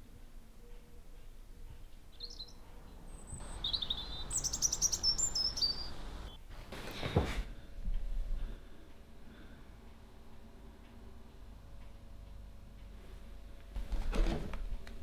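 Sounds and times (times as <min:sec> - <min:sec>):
background hiss: 0:00.0 - 0:14.0
songbirds twittering: 0:00.6 - 0:06.4.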